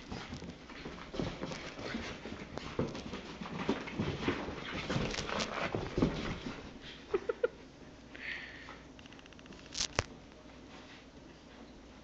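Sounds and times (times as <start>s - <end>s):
dogs scuffling on carpet: 0.0s - 7.0s.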